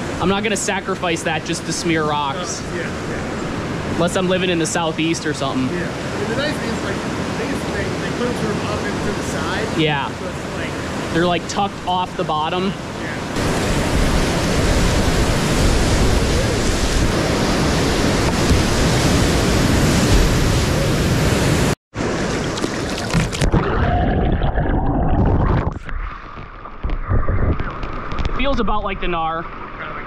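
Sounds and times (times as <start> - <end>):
whitewater rushing: 0.0 - 23.6
muffled water sounds: 0.0 - 30.0
small water splashes: 22.1 - 23.8.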